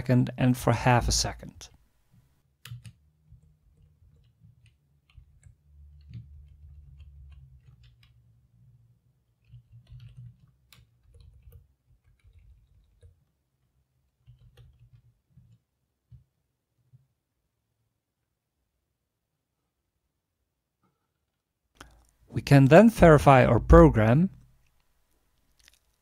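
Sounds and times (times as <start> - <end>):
computer keyboard keystrokes: 2.6 - 3.0, 9.4 - 13.2, 14.2 - 15.0.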